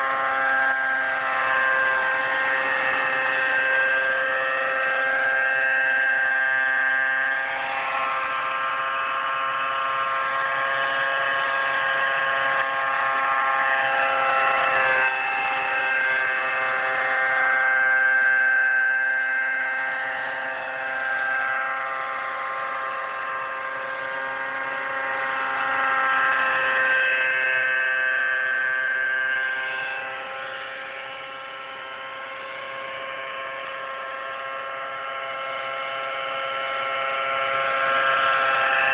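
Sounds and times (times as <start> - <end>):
model helicopter engine whine: 0.0 - 38.9.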